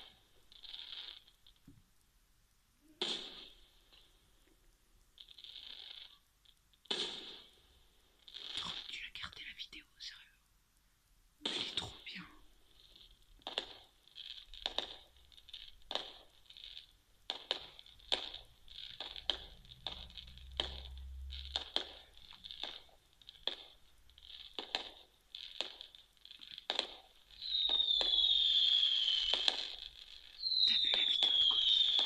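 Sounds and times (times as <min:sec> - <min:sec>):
fireworks bangs and crackles: 0:00.0 - 0:01.8, 0:02.8 - 0:10.1, 0:11.4 - 0:32.0
firework whistle: 0:02.8 - 0:04.0, 0:06.9 - 0:07.6, 0:11.4 - 0:22.9, 0:25.6 - 0:32.0.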